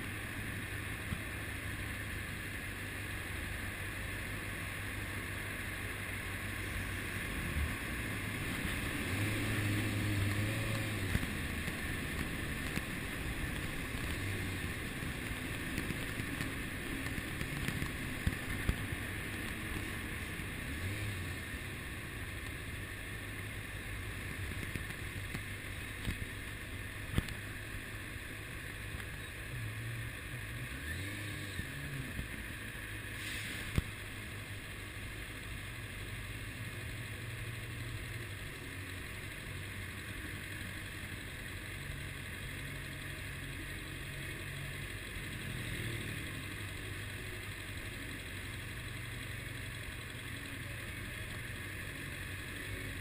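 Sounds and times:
motorcycle engine idling: 10.2s - 30.6s, 33.8s - 53.0s.

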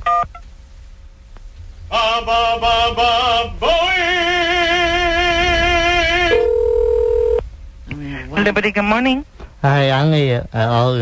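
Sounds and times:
person singing with vibrato: 1.9s - 6.5s
telephone ringing tone: 6.3s - 7.4s.

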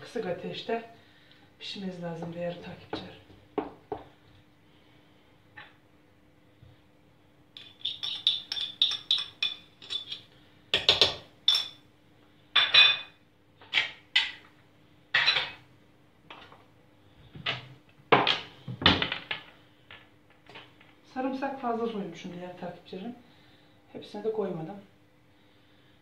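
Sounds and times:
faint steady hum: 0.0s - 26.0s
kitchenware knocking and clattering: 7.6s - 10.2s, 10.8s - 11.8s, 15.2s - 15.6s.

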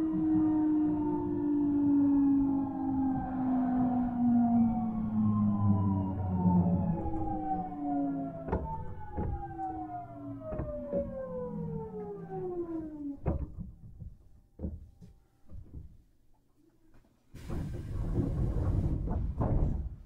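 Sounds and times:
train inverter whine falling in pitch: 0.0s - 13.2s
wheels knocking over rail joints: 8.3s - 12.2s, 17.4s - 20.0s.

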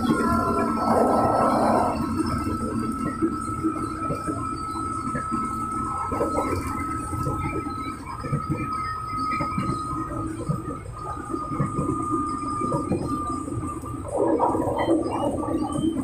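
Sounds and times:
steady high tone: 0.0s - 2.3s
train running noise: 0.0s - 16.0s.

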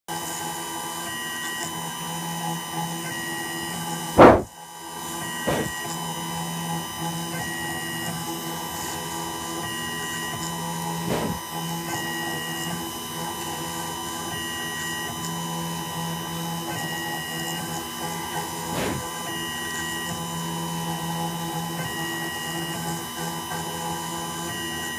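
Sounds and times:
milling machine humming: 0.1s - 24.9s
brief knock: 4.2s - 4.5s, 5.5s - 5.8s, 11.1s - 11.4s, 18.8s - 19.0s.

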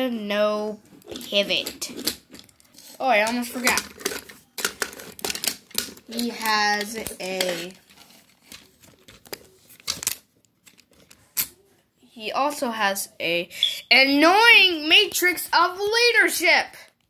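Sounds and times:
person speaking: 0.0s - 2.2s, 2.8s - 5.2s, 5.8s - 7.9s, 12.1s - 16.9s
handling clicks and rustling: 0.8s - 11.7s.

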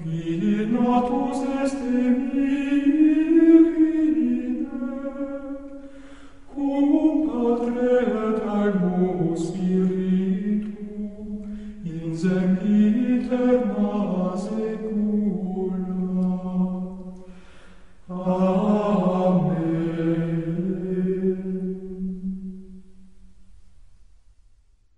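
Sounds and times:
choir singing plainchant in unison: 0.0s - 5.8s, 6.5s - 17.0s, 18.1s - 22.4s
breath: 5.8s - 6.5s, 11.4s - 11.8s, 17.2s - 18.0s.

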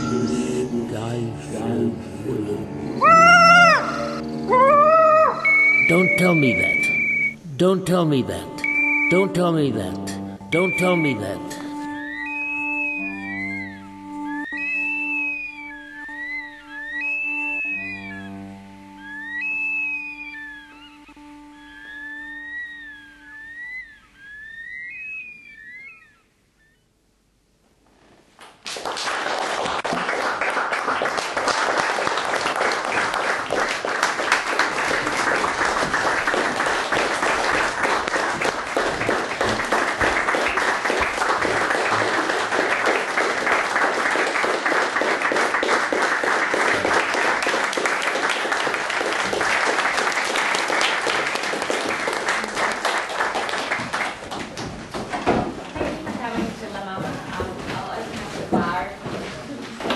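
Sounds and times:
audience applauding: 28.5s - 55.0s.

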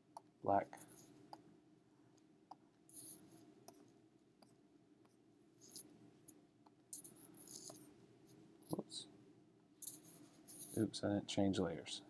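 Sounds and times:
stylus tapping and drawing on tablet: 0.0s - 8.8s.

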